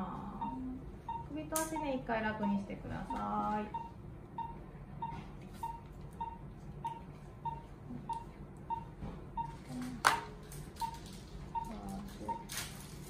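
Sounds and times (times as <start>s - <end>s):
pulse oximeter beeping: 0.3s - 9.8s, 10.8s - 12.5s.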